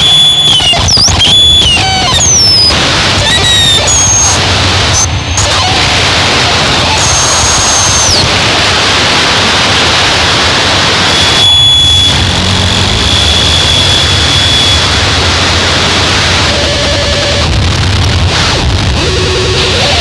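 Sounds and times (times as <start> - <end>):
high whistling tone sliding down: 0.0 - 5.5, 11.1 - 15.0
distorted synthesizer noise: 0.0 - 20.0
steady high tone: 11.0 - 17.6.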